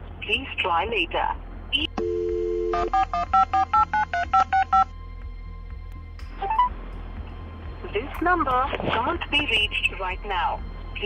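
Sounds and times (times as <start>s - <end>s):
dial tone: 2.0s - 4.9s.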